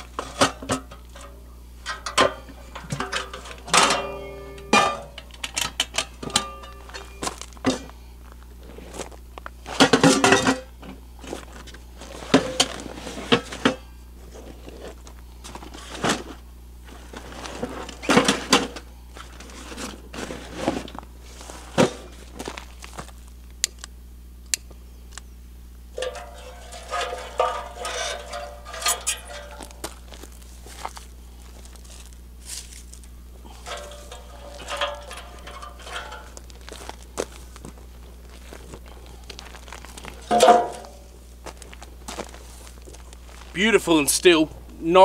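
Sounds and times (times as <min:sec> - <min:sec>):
dry sticks knocking and crackling: 0:00.0 - 0:07.9, 0:26.0 - 0:43.6
metal clanks of cooking pot: 0:00.2 - 0:07.8, 0:26.0 - 0:29.8, 0:33.6 - 0:36.4, 0:40.3 - 0:41.1.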